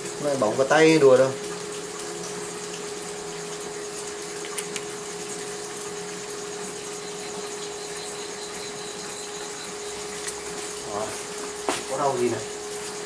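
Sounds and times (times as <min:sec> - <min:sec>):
induction cooktop humming and hissing: 0:00.0 - 0:13.0.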